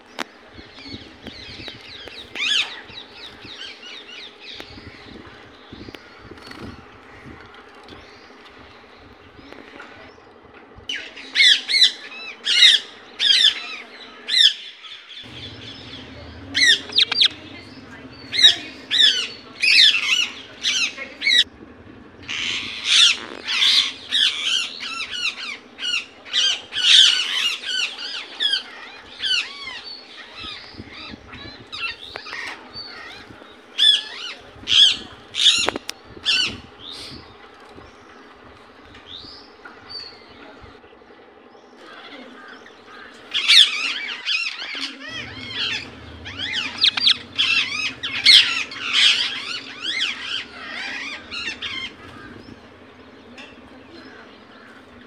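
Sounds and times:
parakeet squawking shrilly: 22.2s - 26.1s, 43.4s - 52.7s.

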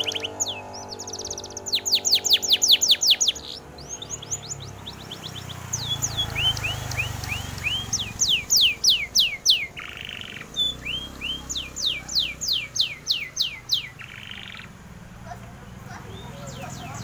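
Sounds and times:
canary singing: 0.0s - 17.0s.

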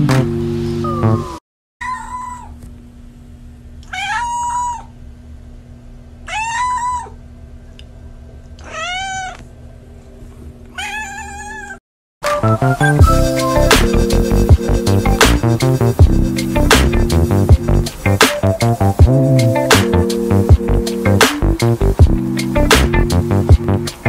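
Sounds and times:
music: 0.0s - 1.4s, 12.2s - 24.0s
cat meowing: 0.9s - 2.6s, 3.8s - 4.9s, 6.2s - 7.2s, 8.6s - 9.4s, 10.7s - 11.8s.

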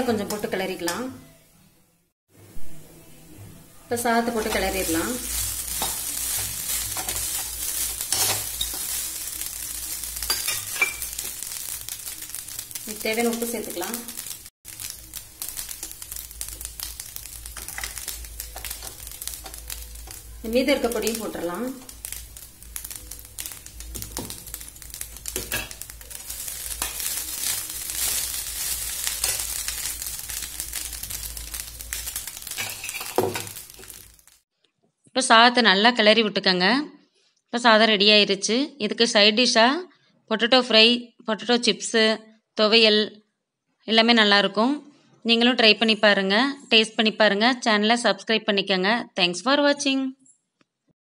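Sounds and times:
oil frying sizzle: 0.0s - 1.3s, 3.2s - 34.4s
spoon scraping pan: 4.2s - 16.1s, 16.8s - 34.0s.

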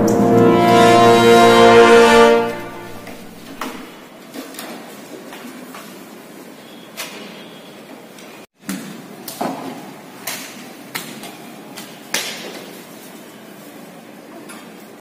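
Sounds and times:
sharp knocks in echoing room: 8.6s - 11.2s.

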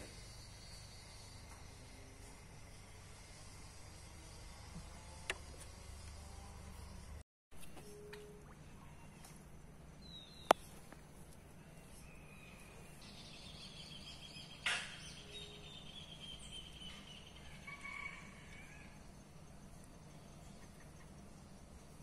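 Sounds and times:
low hum: 0.0s - 14.2s.

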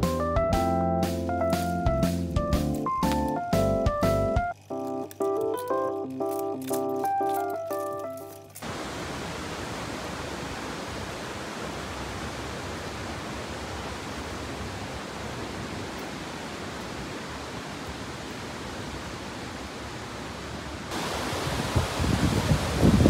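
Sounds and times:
stream flowing over rocks: 8.1s - 23.0s.

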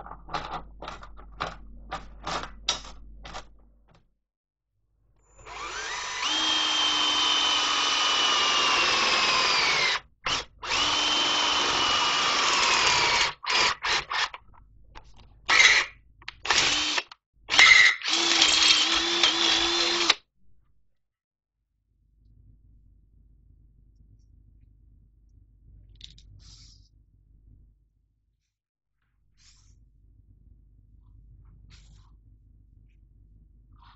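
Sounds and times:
cordless drill boring into steel: 5.3s - 14.4s, 15.5s - 20.2s.

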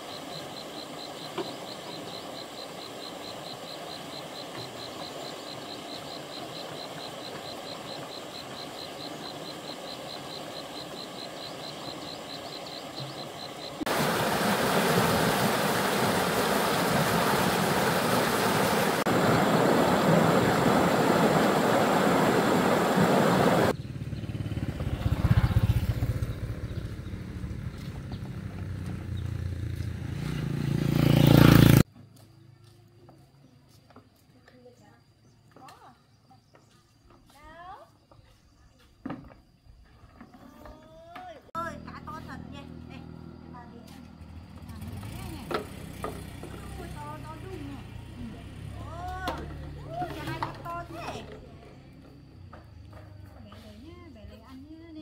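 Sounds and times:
river flowing: 2.2s - 23.7s
whitewater rushing over rocks: 13.9s - 23.7s
passing vehicle engine rumble: 23.6s - 31.8s, 41.7s - 54.0s.

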